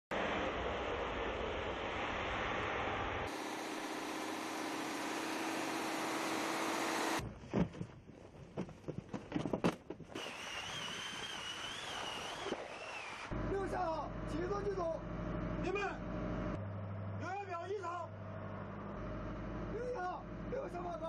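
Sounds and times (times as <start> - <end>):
vehicle engine: 0.1 - 7.4, 13.3 - 21.0
low hum: 0.1 - 7.5.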